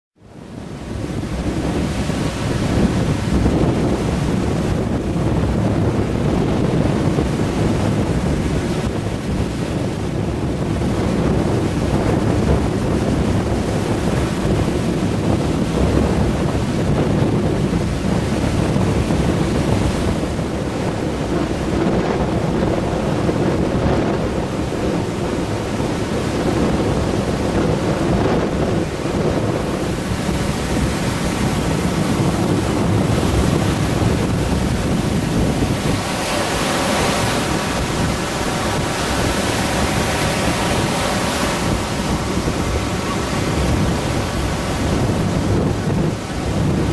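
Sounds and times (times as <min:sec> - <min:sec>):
surf breaking on shore: 0:00.2 - 0:46.9
wind rumbling on microphone: 0:00.2 - 0:46.9.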